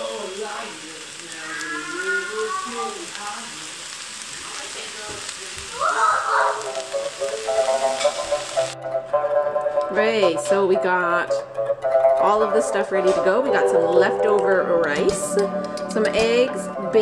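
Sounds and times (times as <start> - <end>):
rice sizzling in a frying pan: 0.0 - 8.8, 12.2 - 17.0.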